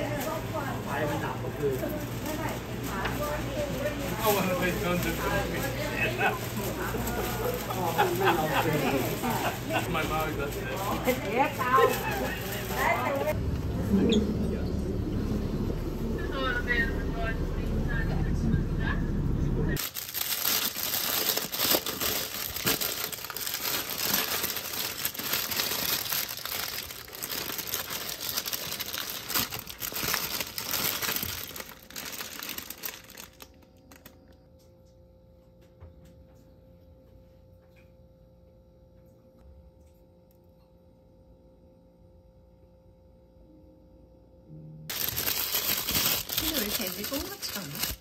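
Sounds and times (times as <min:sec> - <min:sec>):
paper wrapper crinkling: 0:00.0 - 0:13.4, 0:19.8 - 0:34.4, 0:44.9 - 0:48.0.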